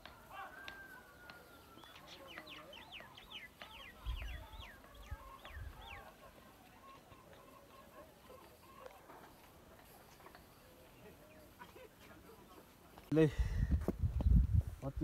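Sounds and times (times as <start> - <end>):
faint bird calls: 0.3 - 12.6
microphone bumps: 13.6 - 14.8.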